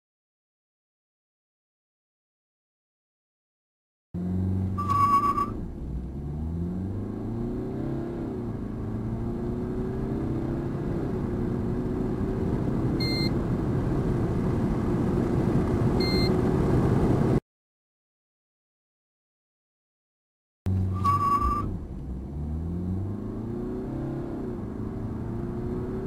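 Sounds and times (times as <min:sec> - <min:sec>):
car engine accelerating: 0:04.2 - 0:17.4, 0:20.7 - 0:26.0
short electronic beep: 0:04.7 - 0:05.6, 0:13.0 - 0:13.4, 0:16.0 - 0:16.4, 0:20.8 - 0:21.8.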